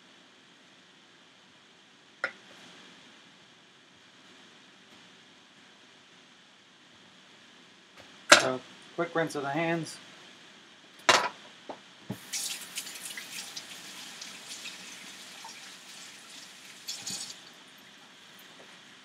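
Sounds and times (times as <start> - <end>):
tap water splashing: 12.1 - 17.5.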